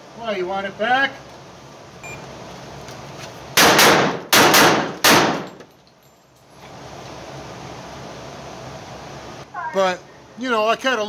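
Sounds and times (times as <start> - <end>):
pistol shots indoors: 3.6 - 5.6.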